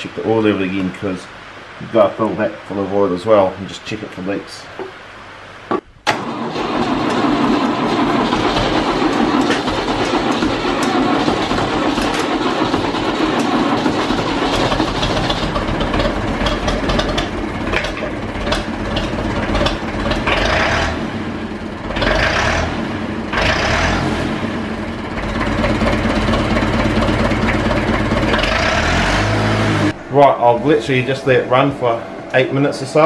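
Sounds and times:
tractor engine idling: 6.1s - 23.8s, 24.5s - 33.0s.

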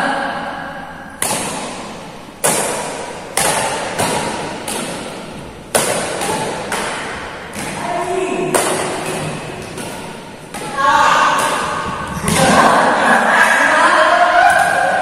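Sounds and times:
rackets hitting a shuttlecock: 1.2s - 13.0s.

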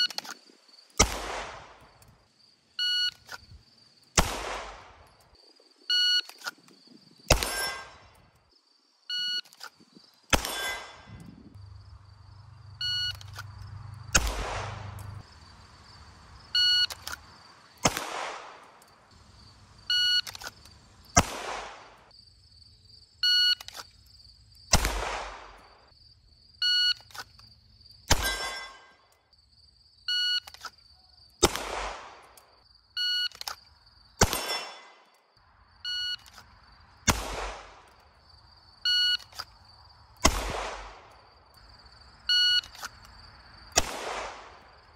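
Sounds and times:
pistol shots with ringing tail: 1.0s - 1.9s, 4.2s - 5.1s, 7.3s - 8.1s, 10.3s - 11.2s, 14.1s - 15.2s, 17.8s - 18.8s, 21.2s - 22.1s, 24.7s - 25.8s, 28.1s - 29.0s, 31.4s - 32.4s, 34.2s - 35.1s, 37.1s - 37.9s, 40.2s - 41.1s, 43.8s - 44.7s
shot timer beeps: 12.8s - 13.3s.

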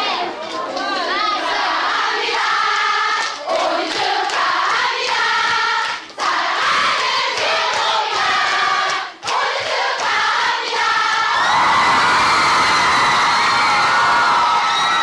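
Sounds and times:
crowd singing in unison: 0.0s - 11.6s.

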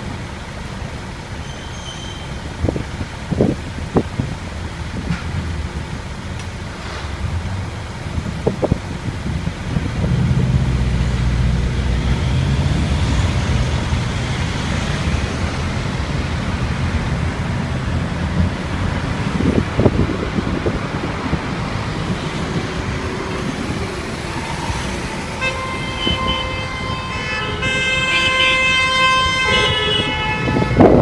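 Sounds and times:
city traffic: 0.0s - 31.0s
engine and tyre rumble: 0.0s - 31.0s.

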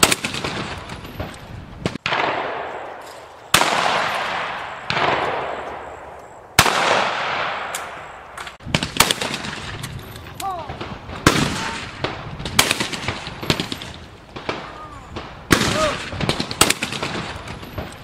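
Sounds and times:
shotgun shots with echo: 0.0s - 6.0s, 6.6s - 8.1s, 8.7s - 9.8s, 10.7s - 17.9s.

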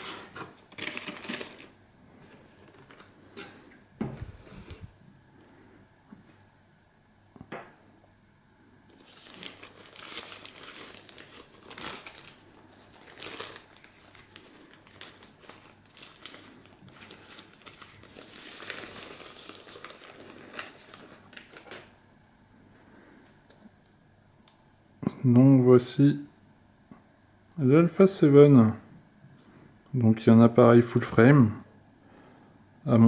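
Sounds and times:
paper wrapping crinkling: 0.0s - 3.6s, 8.9s - 22.0s.

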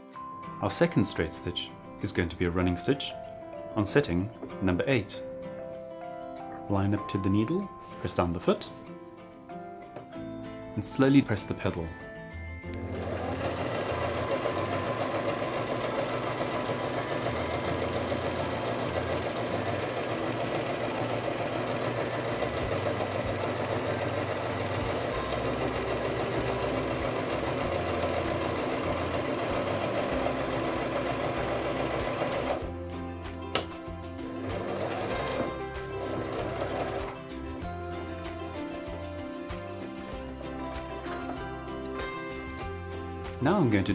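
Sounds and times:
electric sewing machine running: 12.8s - 32.7s, 34.3s - 37.2s.

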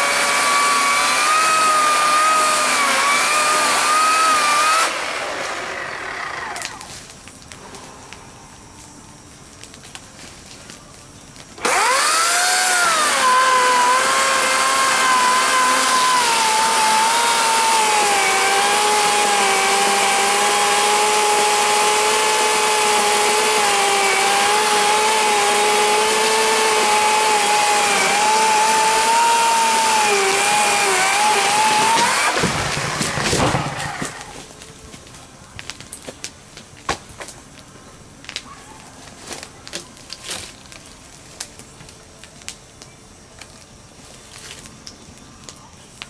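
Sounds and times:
chainsaw cutting log: 0.0s - 6.9s, 11.6s - 34.5s
wood and branches breaking: 0.1s - 7.6s, 9.5s - 37.5s, 38.2s - 45.6s.

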